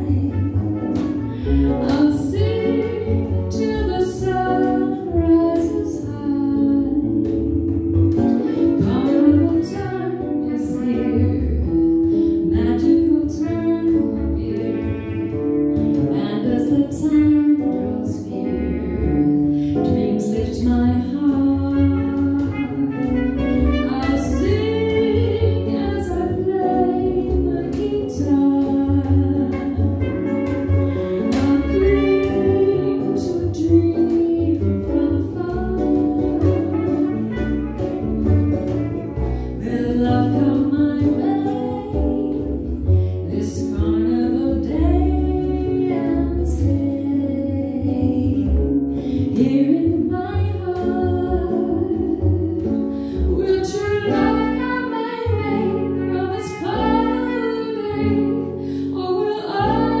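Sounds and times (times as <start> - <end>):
acoustic guitar: 0.0 - 60.0
plucked double bass: 0.0 - 60.0
woman singing: 0.0 - 60.0
trumpet: 0.1 - 2.0, 21.8 - 25.1, 29.4 - 33.2, 36.4 - 39.5, 53.8 - 58.2.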